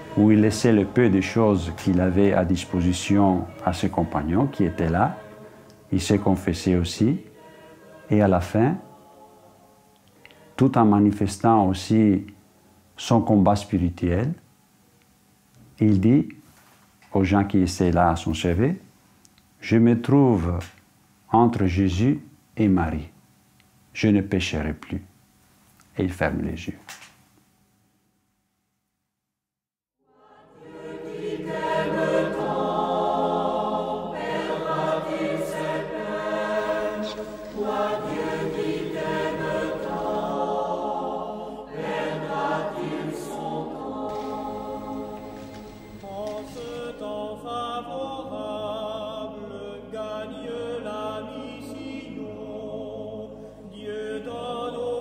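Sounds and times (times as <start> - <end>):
choir singing: 0.0 - 11.7, 30.1 - 55.0.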